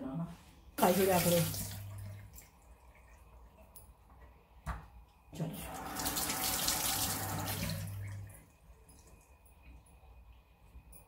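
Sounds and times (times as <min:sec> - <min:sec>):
water splashing into sink: 0:00.8 - 0:03.6, 0:05.4 - 0:09.2.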